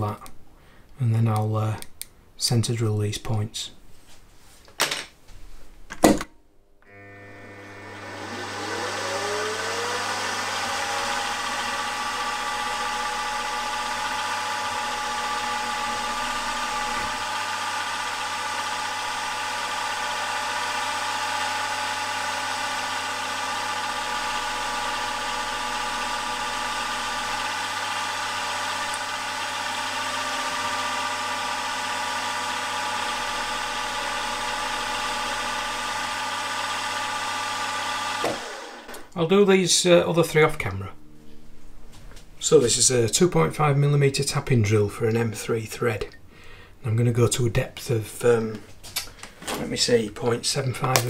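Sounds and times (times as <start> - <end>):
milling machine motor whine: 6.8 - 39.1
drill spotting holes in metal: 10.1 - 39.0.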